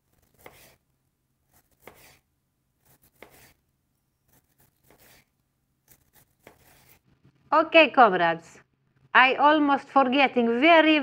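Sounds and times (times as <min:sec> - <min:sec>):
knife slicing cabbage on board: 0:00.0 - 0:00.8, 0:01.5 - 0:03.6, 0:04.3 - 0:05.3, 0:05.9 - 0:07.0.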